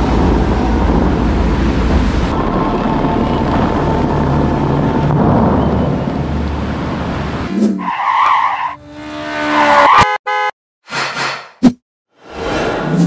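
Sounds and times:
wind buffeting microphone: 0.0 - 7.5.

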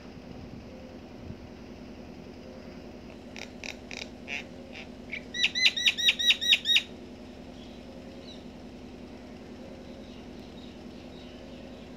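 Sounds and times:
myna calling: 3.2 - 6.9.

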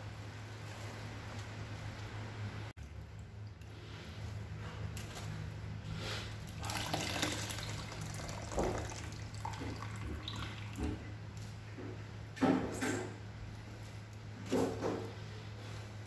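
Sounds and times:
steady low hum: 0.0 - 16.0
hands squeezing wet coconut: 6.0 - 11.4
liquid squelching and dripping: 6.3 - 11.5.

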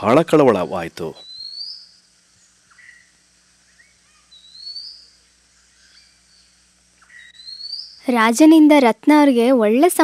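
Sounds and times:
low steady hum: 0.0 - 10.0
bird rising whistle: 1.2 - 2.0, 3.7 - 6.2, 7.0 - 8.0
soft bird chirps: 1.2 - 8.2.

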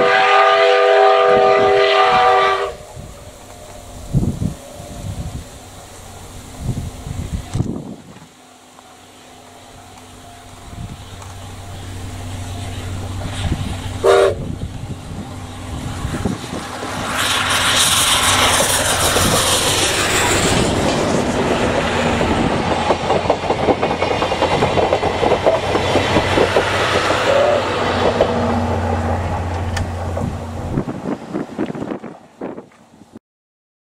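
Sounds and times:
steam whistle blast: 0.0 - 4.0, 11.8 - 14.7, 15.8 - 20.6, 27.0 - 28.0
rush of steam and exhaust: 0.0 - 33.2
wheels clattering over rail joints: 9.5 - 32.5.

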